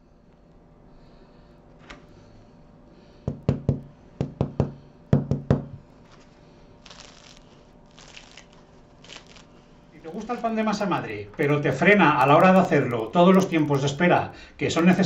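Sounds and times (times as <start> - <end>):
knocking on bread crust: 3.3 - 5.8
bread crust crackling: 6.8 - 14.3.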